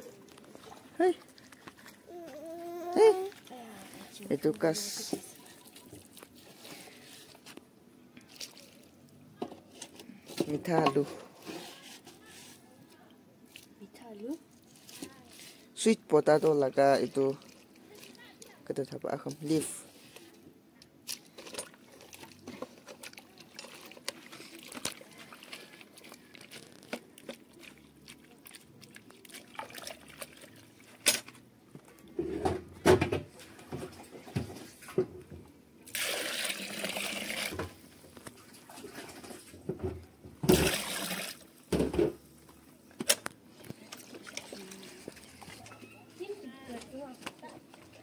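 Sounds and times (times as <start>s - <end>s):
paddle stirring mash in pot: 21.2s - 31.4s
water pouring: 21.4s - 31.0s, 35.9s - 37.8s, 40.5s - 41.6s.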